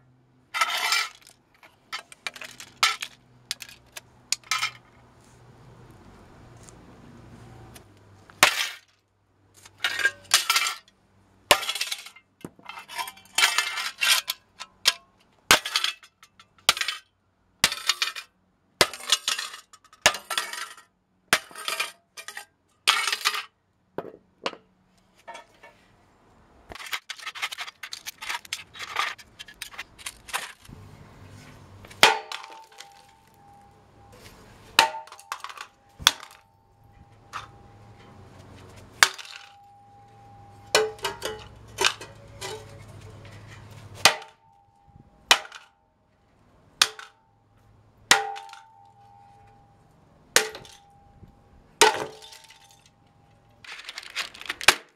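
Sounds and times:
stick smashing plastic: 26.7s - 30.7s, 31.9s - 33.4s, 34.8s - 36.4s, 53.6s - 54.9s
plastic fragments skittering on stone: 53.6s - 54.9s.

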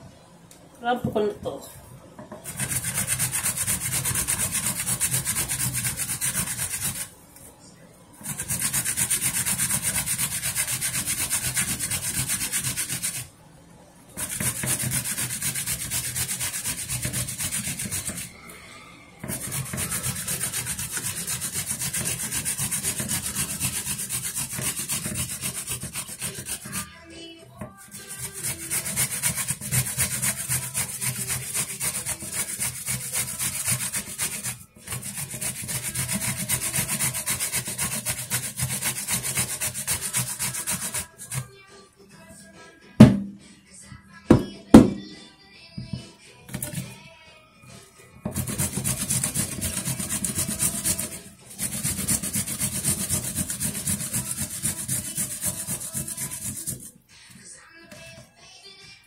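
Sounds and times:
vegetable grating on metal grater: 2.4s - 7.1s, 8.2s - 13.3s, 14.2s - 18.3s, 19.2s - 26.9s, 27.7s - 41.5s, 46.5s - 46.9s, 48.3s - 56.9s.

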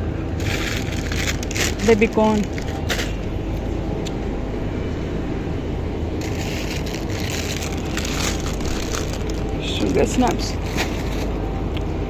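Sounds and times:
steady low hum: 0.0s - 12.0s
plastic packaging crinkling: 0.4s - 3.3s, 6.2s - 11.3s.

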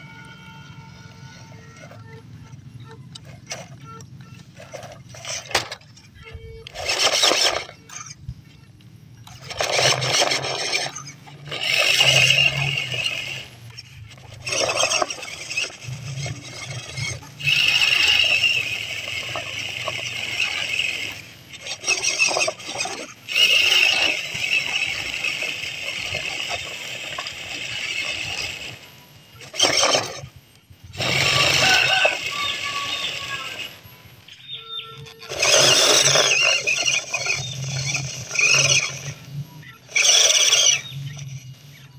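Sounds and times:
toy car motor whirring: 0.0s - 41.9s
tyres scraping over leaves: 31.0s - 34.1s.

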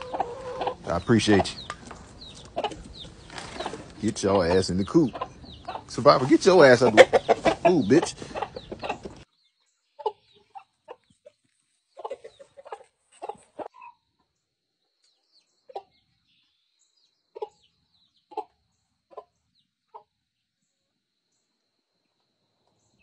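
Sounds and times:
hens clucking: 0.0s - 9.3s, 10.0s - 14.0s, 15.7s - 16.0s, 17.3s - 20.1s.

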